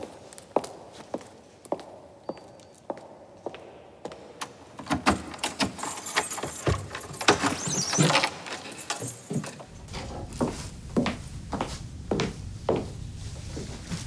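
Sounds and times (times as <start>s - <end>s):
keys jangling at door lock: 4.8s - 10.3s
footsteps: 5.8s - 14.0s.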